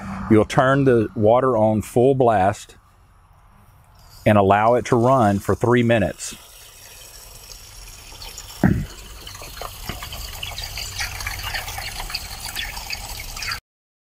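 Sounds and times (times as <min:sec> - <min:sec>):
water splashing from spigot onto grass: 0:04.0 - 0:13.6.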